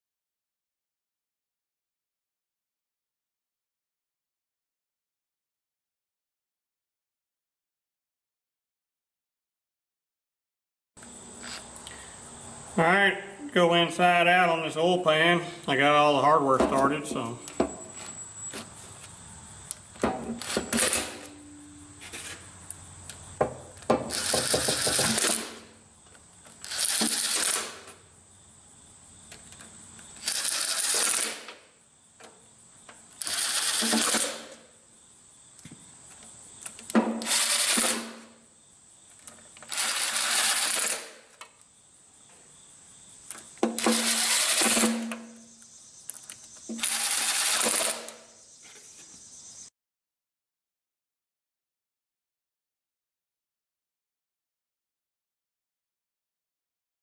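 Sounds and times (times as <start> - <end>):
impact driver hammering: 23.4 - 25.7, 33.7 - 34.6, 36.9 - 38.3, 43.6 - 45.4.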